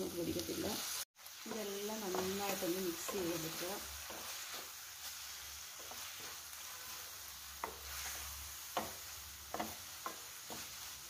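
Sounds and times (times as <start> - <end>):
vegetables sizzling in sauce: 0.0 - 11.0
spatula stirring: 1.4 - 11.0
spatula knocking on pan: 1.8 - 2.4, 8.7 - 10.9.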